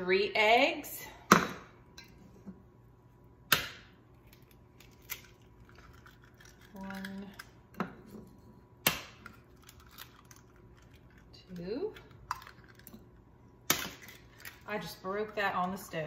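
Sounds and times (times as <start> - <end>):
eggshells cracking: 4.2 - 7.7, 8.8 - 14.7.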